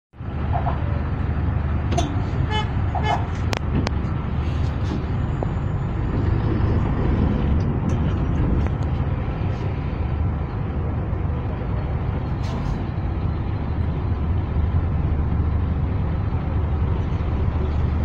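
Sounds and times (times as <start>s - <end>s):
traffic rumble: 0.1s - 18.0s
car horn toot: 2.5s - 3.3s.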